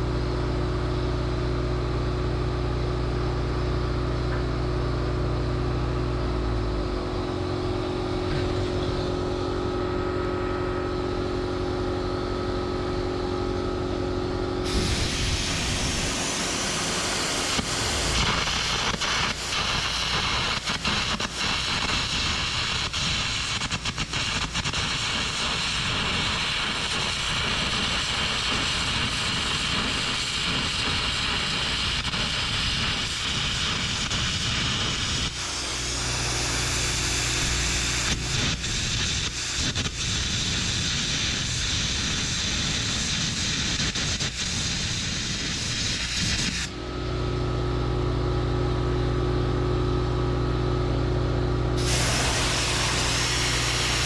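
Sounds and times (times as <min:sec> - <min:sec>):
engine humming: 0:00.0 - 0:20.1
arc gouging hiss with crackling pops: 0:14.7 - 0:46.7.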